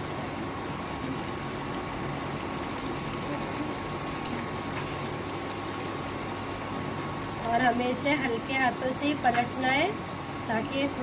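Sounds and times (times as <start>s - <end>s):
faint steady hum: 0.0s - 11.0s
oil sizzling with crackles: 0.0s - 11.0s.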